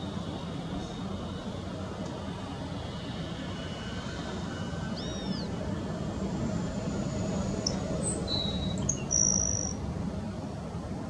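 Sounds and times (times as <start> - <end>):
jet engines rumbling: 0.0 - 11.0
small birds chirping: 7.6 - 9.8.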